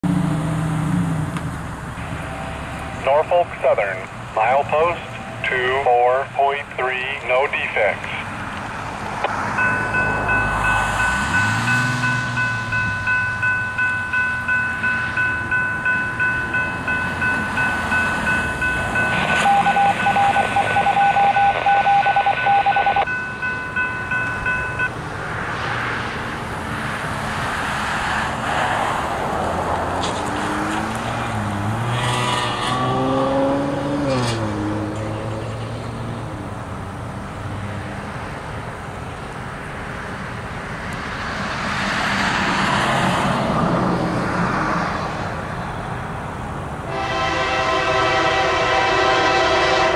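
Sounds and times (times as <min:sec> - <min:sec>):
road vehicle passing: 0:00.0 - 0:49.9
distant approaching train: 0:00.9 - 0:29.8, 0:40.0 - 0:49.9
railroad crossing bell ringing: 0:02.0 - 0:07.2, 0:09.4 - 0:25.0, 0:46.9 - 0:49.9.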